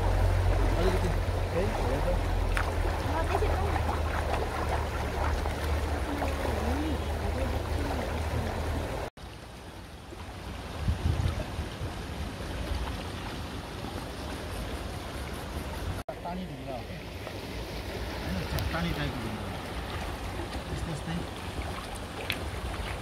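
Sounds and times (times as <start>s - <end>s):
stream running over stones: 0.0s - 23.0s
hands splashing among stones: 2.4s - 6.8s.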